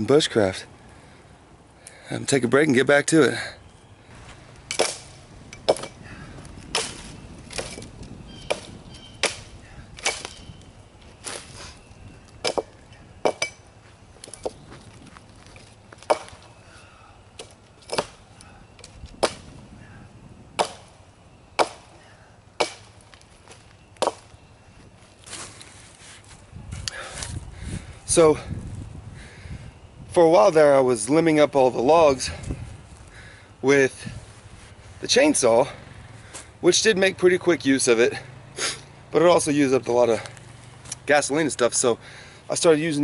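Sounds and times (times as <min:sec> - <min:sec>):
axe chopping wood: 0:04.7 - 0:06.0, 0:06.6 - 0:10.4, 0:12.4 - 0:13.6, 0:16.0 - 0:16.4, 0:17.4 - 0:18.2, 0:19.1 - 0:19.6, 0:20.5 - 0:21.0, 0:21.6 - 0:21.9, 0:22.6 - 0:23.3, 0:24.0 - 0:24.3.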